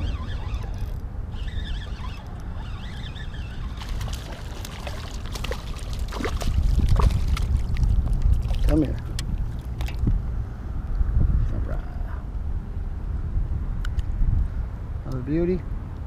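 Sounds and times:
fish splashing at water surface: 0:03.8 - 0:08.8.

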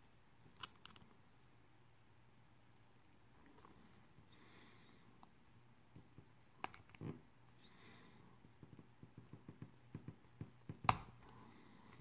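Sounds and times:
sharp plastic snap: 0:10.8 - 0:11.2.

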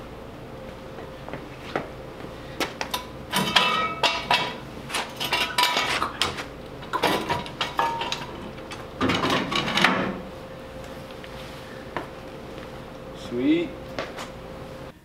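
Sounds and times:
steel axle clanking and scraping: 0:03.3 - 0:06.4.

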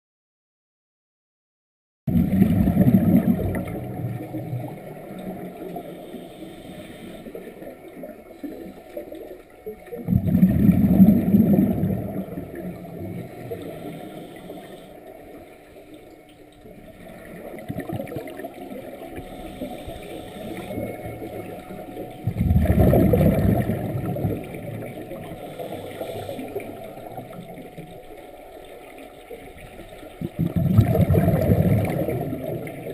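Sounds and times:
regulator exhaust bubbles: 0:02.1 - 0:06.0, 0:09.8 - 0:13.9, 0:16.2 - 0:28.1, 0:29.7 - 0:32.9.

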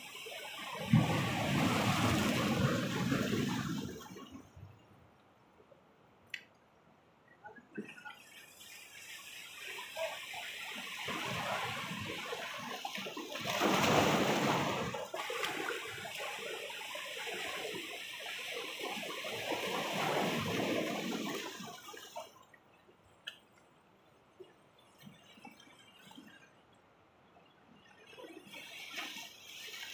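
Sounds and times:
sea waves washing over rocks: 0:00.0 - 0:04.6, 0:09.2 - 0:22.2.

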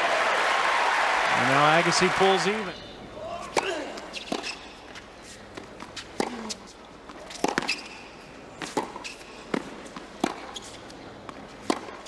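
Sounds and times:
tennis racquet striking ball: 0:03.4 - 0:05.0, 0:05.6 - 0:12.0
tennis ball bouncing: 0:03.4 - 0:12.0.

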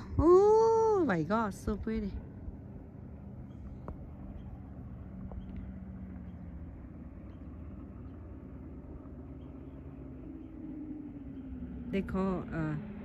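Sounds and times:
motorboat engine droning: 0:00.0 - 0:13.0.

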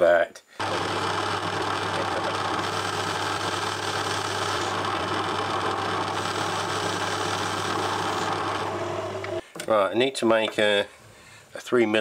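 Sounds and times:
metal lathe humming: 0:00.6 - 0:09.4.

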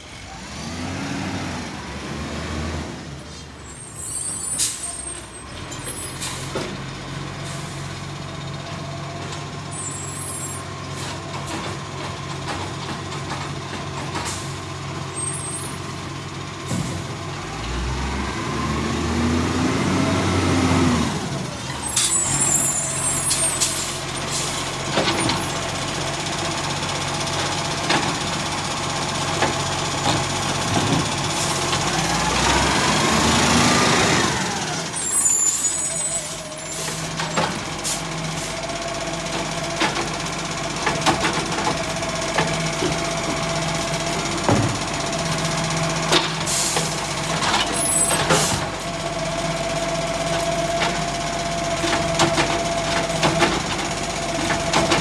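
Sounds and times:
diesel engine revving: 0:00.0 - 0:55.0
truck idling with whine: 0:03.1 - 0:18.0, 0:20.9 - 0:55.0
air brakes hissing: 0:03.6 - 0:06.6, 0:07.4 - 0:08.0, 0:21.7 - 0:24.7, 0:34.8 - 0:37.2, 0:46.4 - 0:47.0.

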